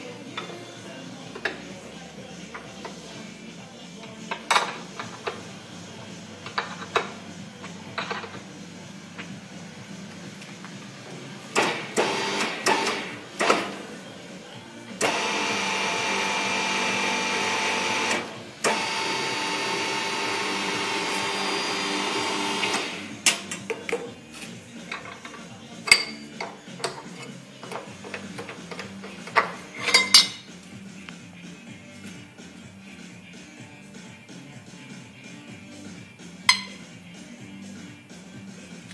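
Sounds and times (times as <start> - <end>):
metal tube knocking and clinking: 36.5 - 36.8.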